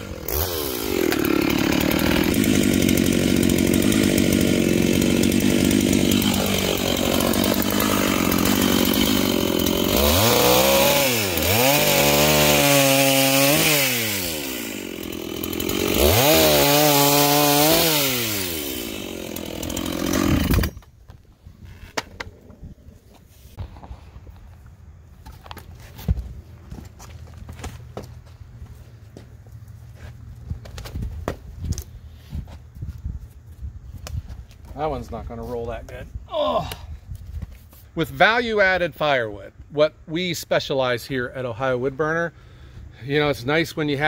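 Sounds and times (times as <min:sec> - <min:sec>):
chainsaw revving: 0:00.0 - 0:20.8.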